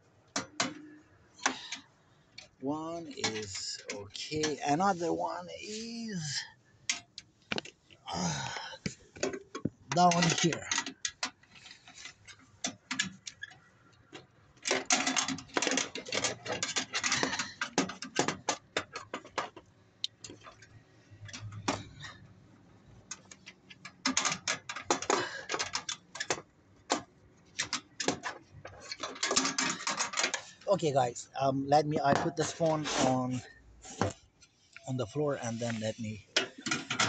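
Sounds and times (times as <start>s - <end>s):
rapid clicking and rattling: 6.3s - 22.2s, 23.0s - 30.7s.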